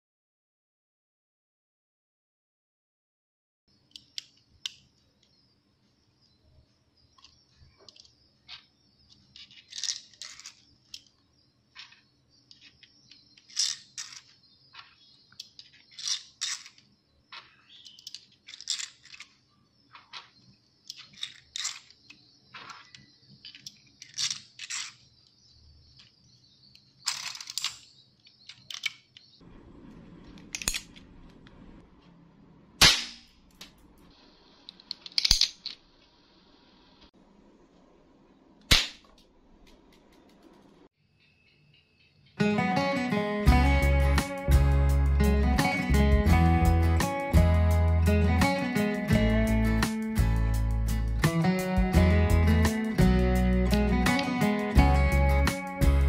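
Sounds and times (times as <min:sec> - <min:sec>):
sharp plastic snaps: 0:38.6 - 0:40.5.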